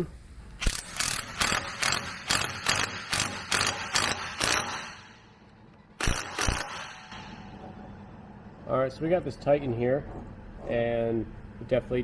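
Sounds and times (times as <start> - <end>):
impact gun hammering: 0.6 - 5.4, 6.0 - 7.4.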